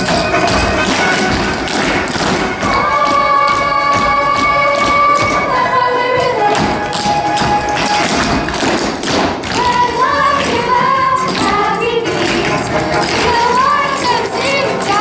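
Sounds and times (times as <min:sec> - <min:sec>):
accompaniment music: 0:00.0 - 0:15.0
tap shoes striking stage floor: 0:00.0 - 0:15.0
voices singing: 0:02.6 - 0:08.0, 0:09.6 - 0:15.0.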